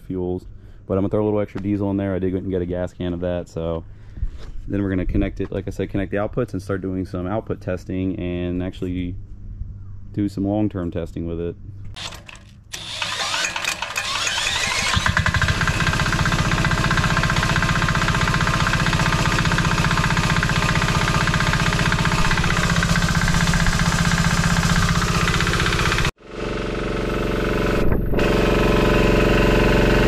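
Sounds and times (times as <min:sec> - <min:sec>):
cordless drill spinning engine: 0:12.0 - 0:30.0
small diesel engine knocking: 0:12.8 - 0:27.7.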